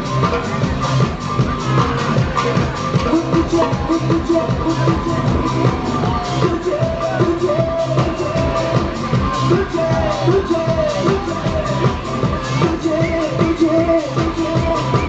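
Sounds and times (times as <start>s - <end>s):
live band playing pop song: 0.0s - 15.0s
man singing through pa: 3.0s - 15.0s.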